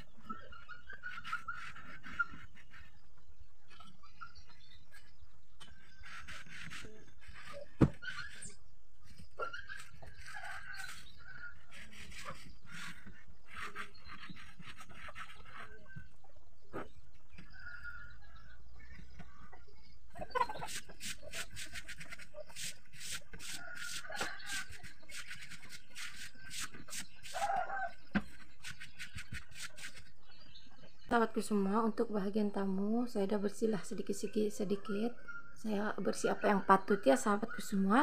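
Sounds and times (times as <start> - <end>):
chicken clucking: 15.1 - 25.2.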